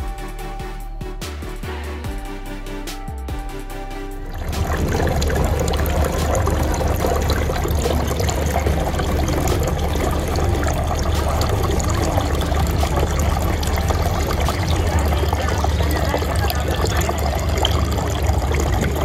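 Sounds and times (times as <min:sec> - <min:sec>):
fountain water trickling and splashing: 0:04.3 - 0:19.0.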